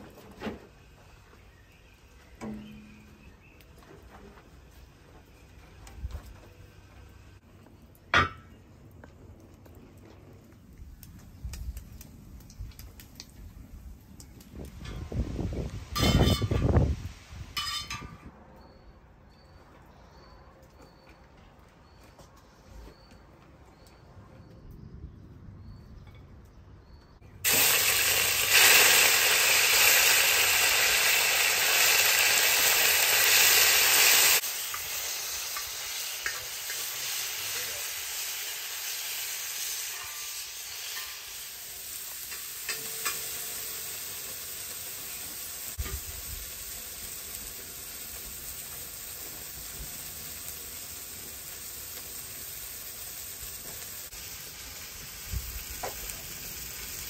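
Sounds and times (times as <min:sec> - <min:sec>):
food sizzling in hot fat: 0:14.5 - 0:18.0, 0:27.4 - 0:57.0.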